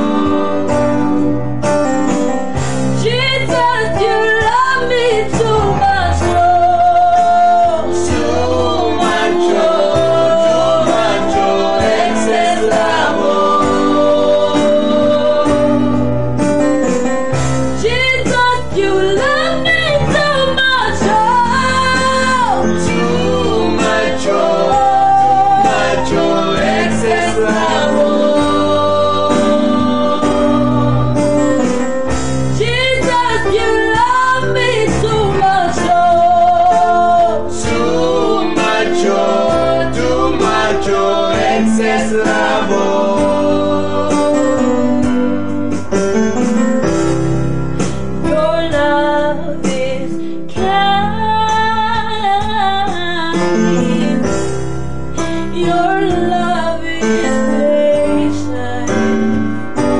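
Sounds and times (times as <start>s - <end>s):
women singing gospel song: 0.0s - 1.0s, 3.0s - 16.0s, 17.8s - 31.3s, 32.6s - 44.8s, 55.5s - 59.2s.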